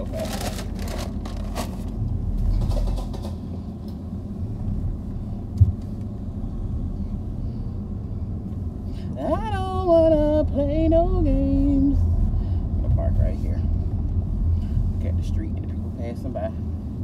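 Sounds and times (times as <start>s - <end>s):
paper bag rustling: 0.0s - 1.9s
car engine rumble: 0.0s - 17.0s
road noise inside car: 0.0s - 17.0s.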